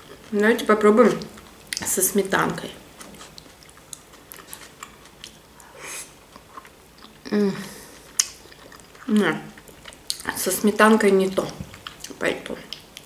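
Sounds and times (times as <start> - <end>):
woman chewing food: 0.0 - 13.0
short breath: 5.6 - 6.2
woman humming mm: 7.2 - 8.0
wet mouth clicks: 8.0 - 9.1.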